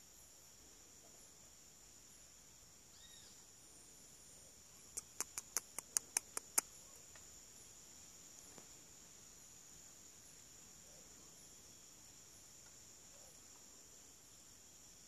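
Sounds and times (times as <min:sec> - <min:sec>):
insects droning: 0:00.0 - 0:15.0
sharp clicks: 0:04.9 - 0:06.7.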